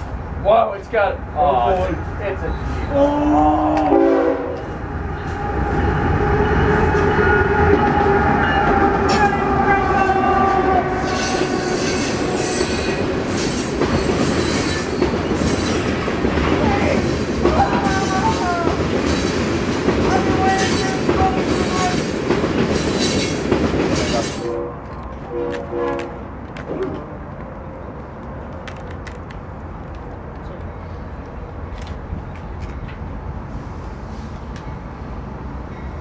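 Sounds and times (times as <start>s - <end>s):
locomotive horn tone: 2.5s - 13.1s, 24.2s - 27.1s
freight cars rumbling and clattering: 4.6s - 36.0s.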